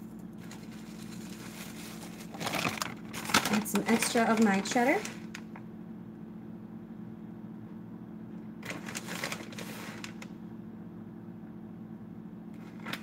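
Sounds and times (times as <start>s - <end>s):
plastic bag crinkling: 0.0s - 5.5s, 8.6s - 10.3s
steady low hum: 0.0s - 13.0s.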